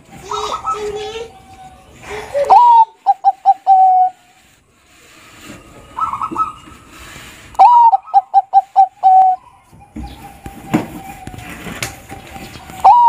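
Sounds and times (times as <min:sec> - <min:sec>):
dove cooing: 0:02.3 - 0:04.5, 0:05.5 - 0:13.0.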